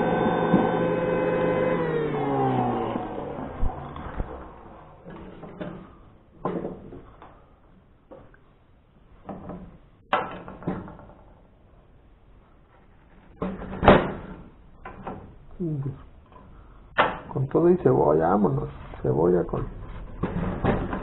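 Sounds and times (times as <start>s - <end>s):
juice extractor motor spinning down: 0.0s - 5.0s.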